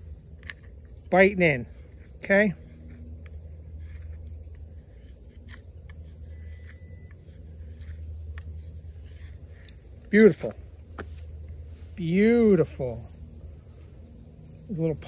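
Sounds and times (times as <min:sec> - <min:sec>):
insect chorus: 0:00.0 - 0:15.0
knife shaving wood: 0:01.6 - 0:12.1.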